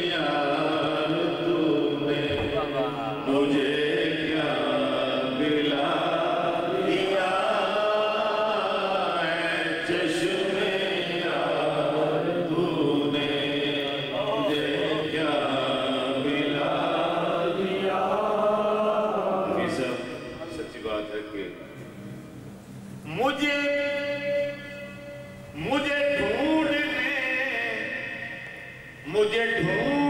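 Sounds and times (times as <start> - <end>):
men chanting: 0.0 - 20.1.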